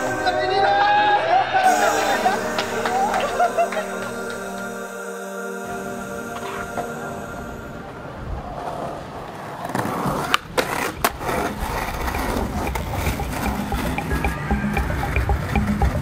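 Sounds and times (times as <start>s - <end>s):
skateboard wheels rolling on concrete: 8.0s - 14.3s
skateboard clacking on ground: 9.6s - 16.0s.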